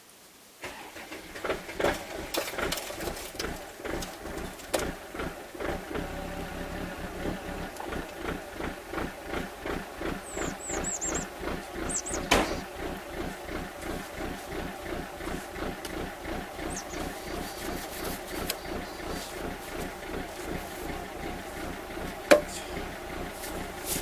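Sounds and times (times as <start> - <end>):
diesel tractor engine idling: 0.6 - 24.0
bird chirping: 10.0 - 14.0, 16.3 - 19.5.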